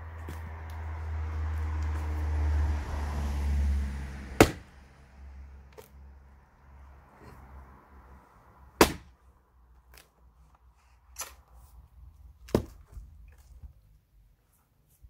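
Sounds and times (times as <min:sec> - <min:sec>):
axe splitting wood: 0:04.4 - 0:04.7, 0:08.8 - 0:09.2, 0:12.4 - 0:13.0.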